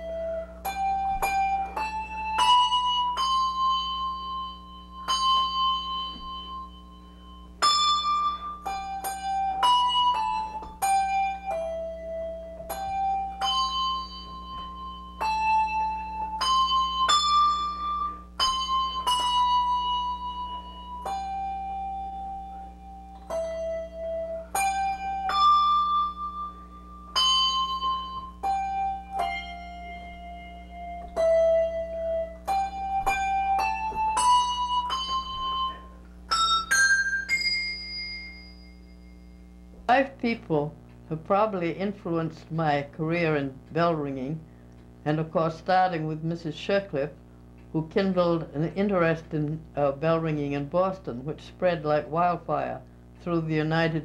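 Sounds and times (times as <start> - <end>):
handbells ringing a melody: 0.0 - 39.6.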